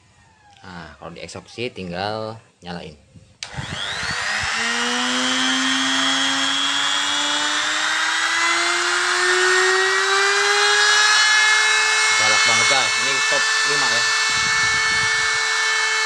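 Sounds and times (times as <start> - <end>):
die grinder motor whine spinning up: 3.4 - 16.0.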